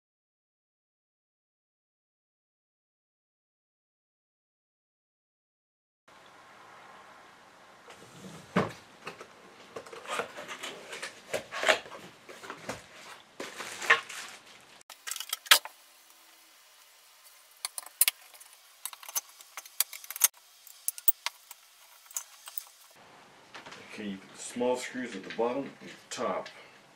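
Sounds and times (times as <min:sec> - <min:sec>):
rubbing and rustling: 0:07.9 - 0:14.8.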